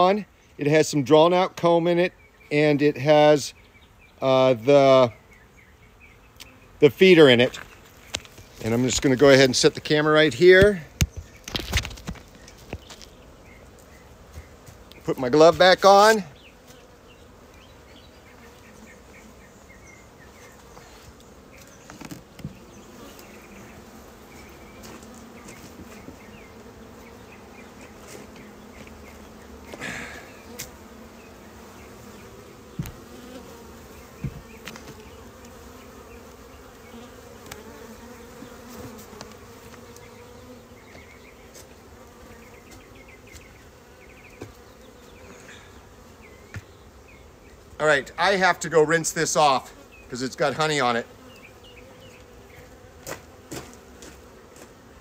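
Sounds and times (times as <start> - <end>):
honeybees buzzing: 0.0 - 55.0
knocks on wooden hive boxes: 10.6 - 12.9, 32.7 - 33.1, 34.2 - 35.0, 44.2 - 44.6
scrape of hive boxes: 16.4 - 47.6, 48.3 - 55.0.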